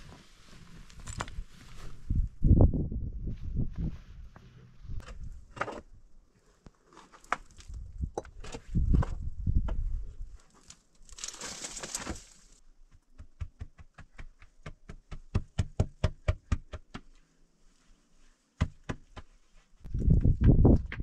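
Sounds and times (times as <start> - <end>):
scraping rustle: 10.3 - 12.6.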